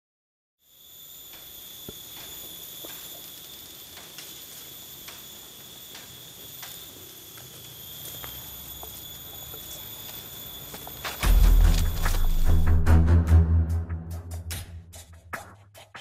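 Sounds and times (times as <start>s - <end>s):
high-pitched insect drone: 0.6s - 12.9s
footsteps on dry leaves: 7.5s - 12.8s.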